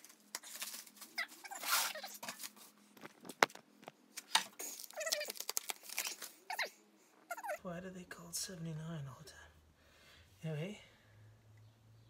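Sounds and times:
plastic wrap crinkling: 0.0 - 3.6, 4.2 - 6.5.

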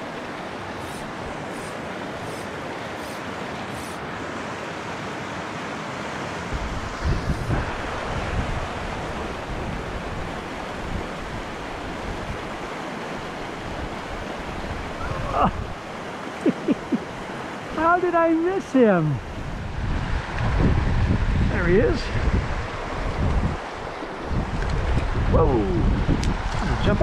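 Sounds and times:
creek rushing over rocks: 0.0 - 27.0
wind buffeting microphone: 6.4 - 15.9, 19.1 - 27.0.

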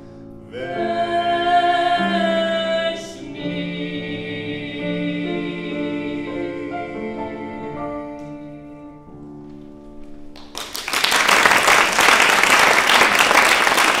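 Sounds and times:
piano accompaniment: 0.0 - 14.0
voices singing: 0.5 - 9.1
applause: 10.4 - 14.0.

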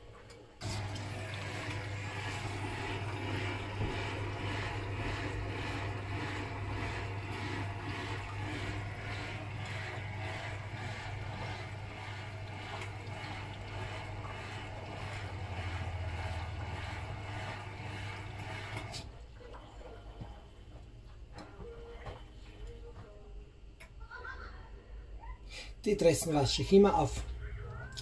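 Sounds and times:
washing machine motor hum: 0.0 - 28.0
water swishing in drum: 0.6 - 20.7.

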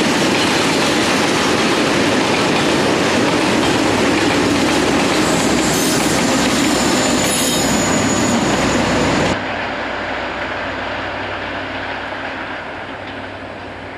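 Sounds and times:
diesel locomotive rumble: 0.0 - 13.9
freight train passing: 0.0 - 13.9
high-pitched wheel squeal: 5.2 - 9.4.

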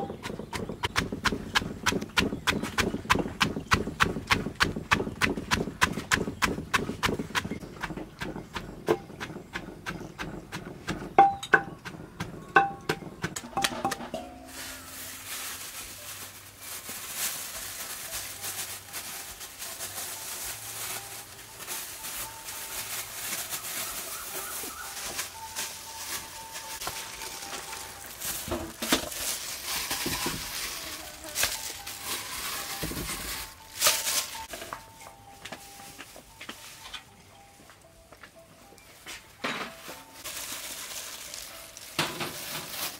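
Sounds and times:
pestle pounding in clay mortar: 0.0 - 14.4.

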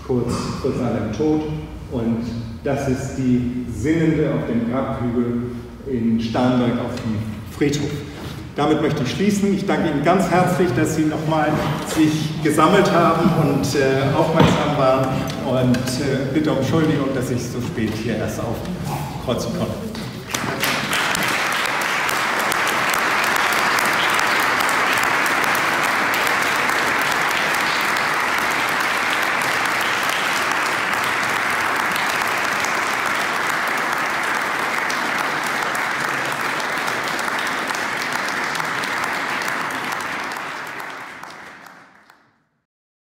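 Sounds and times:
audience applauding: 20.2 - 42.3.

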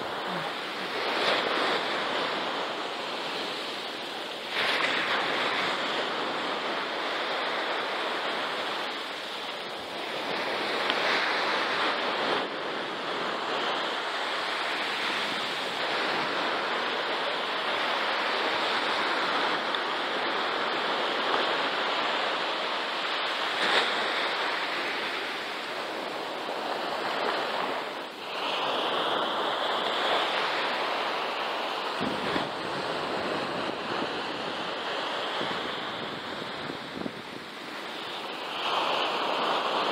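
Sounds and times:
surf breaking on beach: 0.0 - 39.9.

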